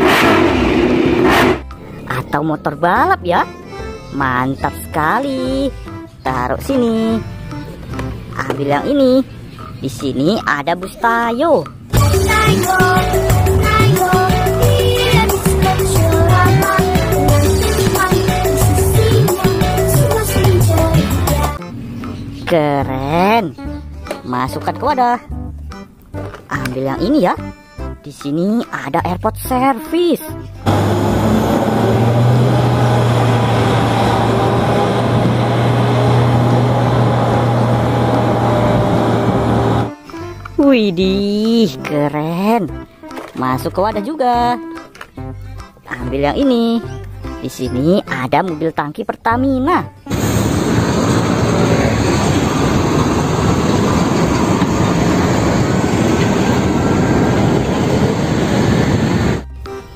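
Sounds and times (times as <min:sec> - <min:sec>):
broad rushing noise: 0:00.0 - 0:01.7, 0:50.1 - 0:59.4
tanker trucks passing: 0:00.0 - 0:08.6, 0:11.6 - 0:24.2, 0:30.6 - 0:40.1, 0:50.1 - 0:59.4
low engine hum: 0:11.9 - 0:22.4, 0:30.5 - 0:40.0, 0:50.1 - 0:59.4.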